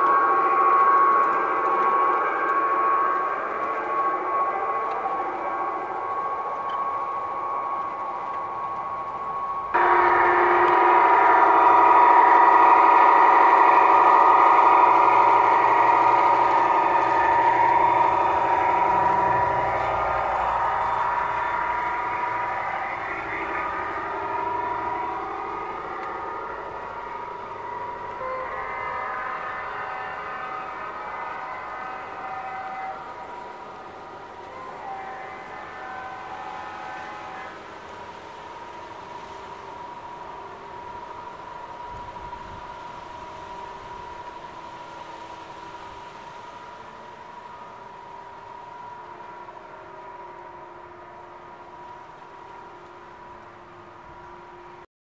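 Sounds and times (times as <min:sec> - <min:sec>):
model train running: 0:00.0 - 0:54.8
diesel locomotive engine hum: 0:00.0 - 0:54.9
model train horn: 0:09.8 - 0:38.2.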